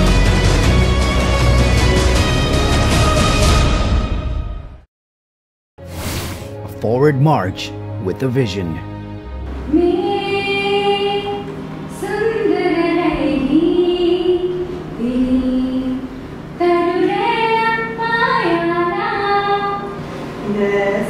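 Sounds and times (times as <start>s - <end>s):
woman singing into microphone: 9.7s - 21.0s.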